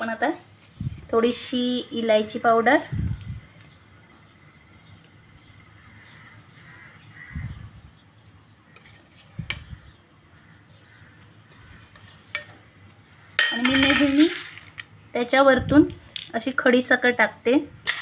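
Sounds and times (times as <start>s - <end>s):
crow cawing: 5.8s - 7.6s, 10.3s - 11.9s.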